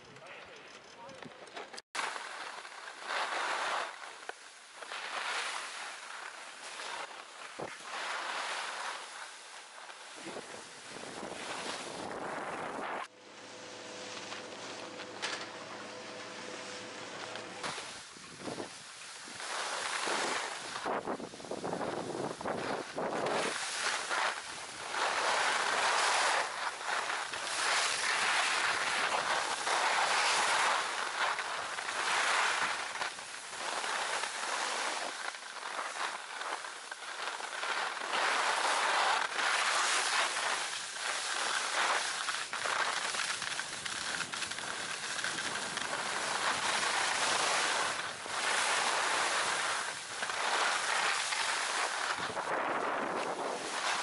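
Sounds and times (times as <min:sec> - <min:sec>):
edges scraping over snow: 0:02.0 - 0:54.0
wind on microphone: 0:10.2 - 0:13.1, 0:20.0 - 0:23.6, 0:51.7 - 0:54.0.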